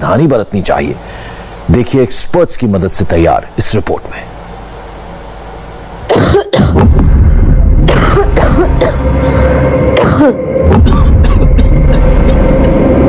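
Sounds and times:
dramatic background music: 6.7 - 13.0
man coughing: 7.9 - 9.2, 10.0 - 12.1.

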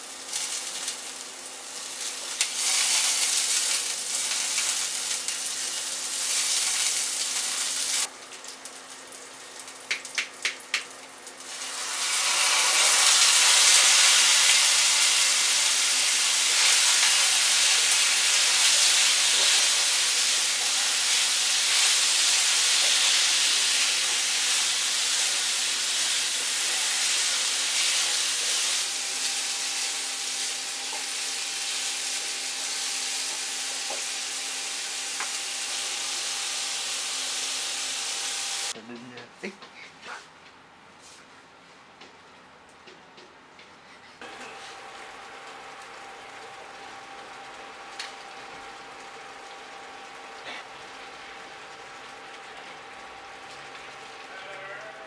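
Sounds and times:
oil sizzling in a frying pan: 0.0 - 38.8, 44.2 - 55.0.

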